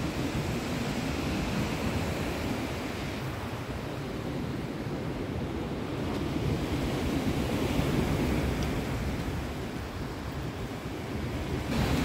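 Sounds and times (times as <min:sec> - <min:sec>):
sea surf washing: 0:00.0 - 0:12.0
wind buffeting microphone: 0:00.0 - 0:12.0.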